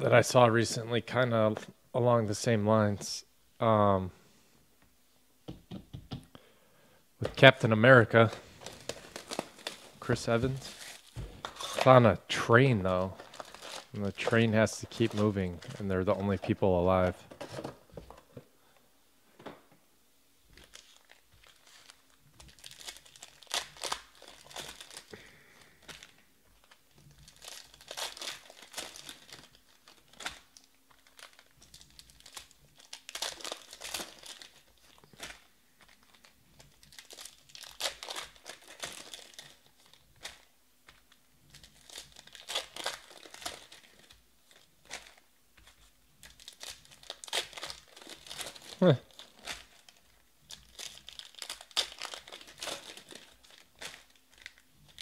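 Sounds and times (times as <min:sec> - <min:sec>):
foil wrappers tearing and crinkling: 0:08.1 - 0:12.0, 0:13.0 - 0:16.4, 0:20.5 - 0:55.0.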